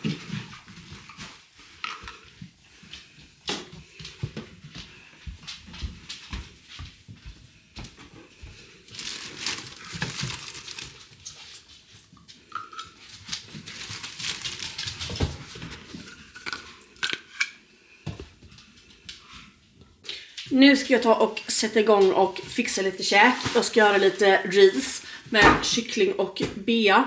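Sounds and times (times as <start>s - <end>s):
plastic bag rustling: 8.7s - 12.1s, 12.9s - 16.7s, 21.4s - 25.2s.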